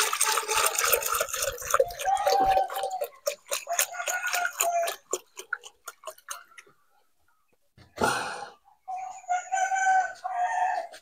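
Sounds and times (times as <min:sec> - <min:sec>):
liquid splashing: 0:00.0 - 0:06.6
drips: 0:00.0 - 0:07.0.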